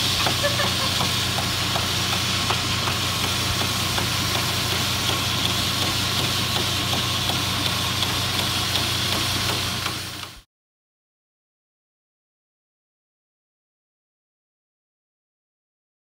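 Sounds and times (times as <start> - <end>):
belt sander humming and hissing: 0.0 - 10.4.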